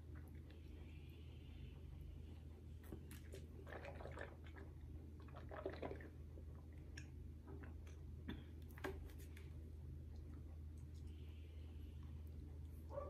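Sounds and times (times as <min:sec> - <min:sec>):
steady low hum: 0:00.0 - 0:13.0
drinking and swallowing: 0:02.8 - 0:09.0.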